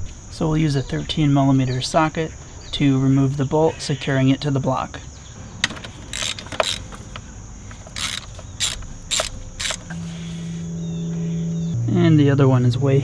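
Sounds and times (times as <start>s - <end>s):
ratchet wrench clicking: 5.7s - 10.0s.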